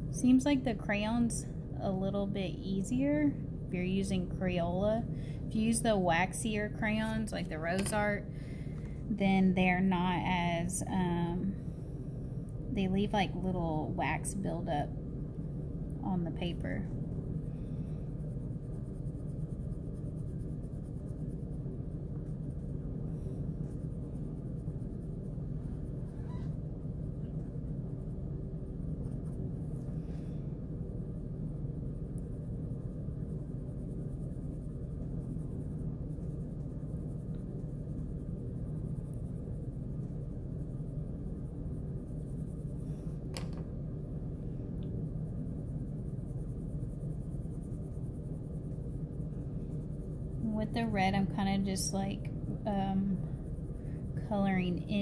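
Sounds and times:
steady low hum: 0.0 - 55.0
crayon scratching on paper: 32.1 - 43.2.

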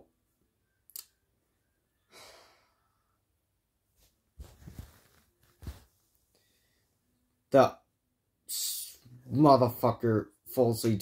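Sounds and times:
knocks and rustling: 4.4 - 5.9.

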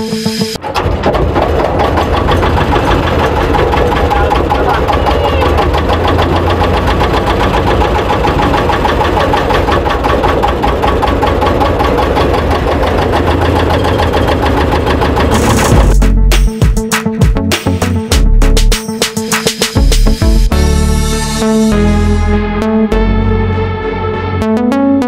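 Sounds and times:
boat engine knocking: 0.6 - 17.4.

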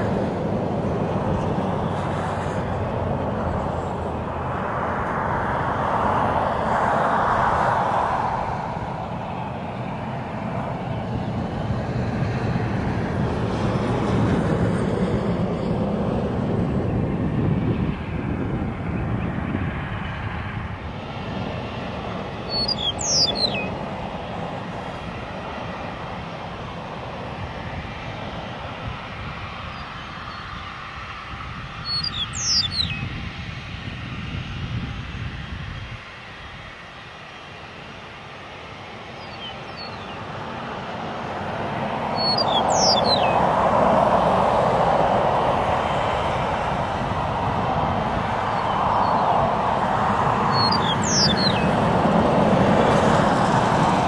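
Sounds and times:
jet airliner engines rumbling: 0.0 - 54.0
propeller plane engine: 0.0 - 54.0
bird chirping: 22.4 - 23.8, 31.8 - 33.1, 39.2 - 40.2, 42.2 - 43.4, 50.5 - 51.7.

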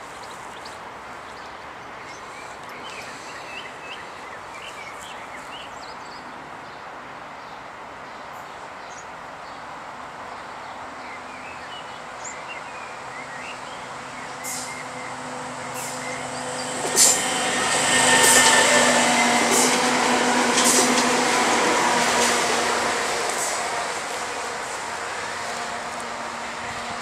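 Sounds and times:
faint electric train hum: 8.2 - 27.0.

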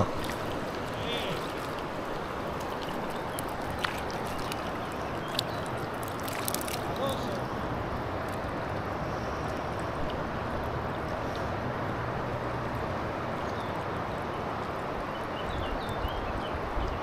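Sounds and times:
river flowing over stones: 0.0 - 17.0.

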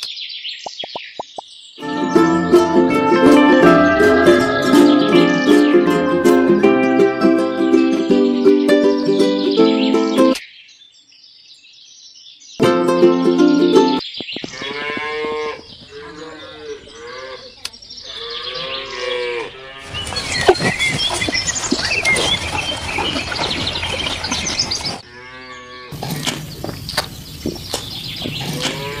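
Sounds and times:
cattle mooing: 14.5 - 20.6, 25.0 - 26.0, 28.4 - 29.0.

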